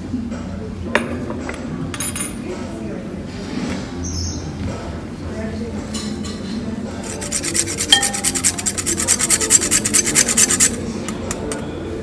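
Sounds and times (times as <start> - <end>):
food grated on metal grater: 7.0 - 10.9.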